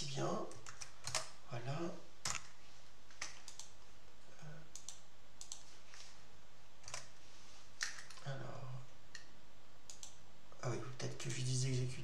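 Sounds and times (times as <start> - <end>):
mouse and keyboard clicks: 4.8 - 5.7.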